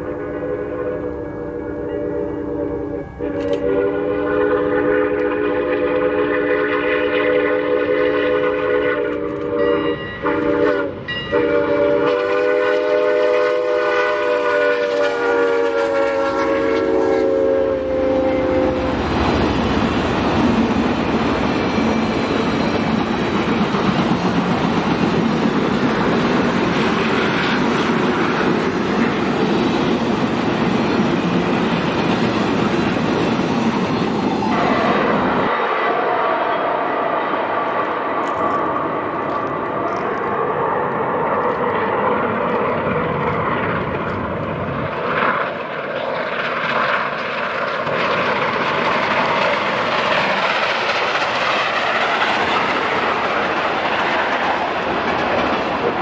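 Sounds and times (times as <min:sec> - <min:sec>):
steam whistle blowing: 0:00.0 - 0:19.0, 0:34.4 - 0:37.6
train wheels clickety-clack: 0:03.2 - 0:35.6, 0:37.5 - 0:56.0.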